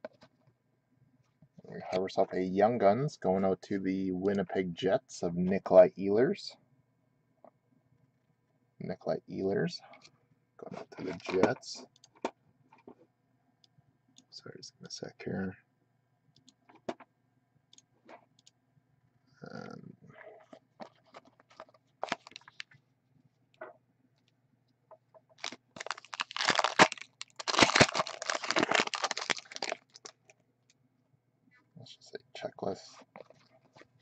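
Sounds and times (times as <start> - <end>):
foil wrapper crackling: 21.5 - 22.7, 25.4 - 30.3
foil pack tearing and crinkling: 22.0 - 22.6, 25.4 - 30.2.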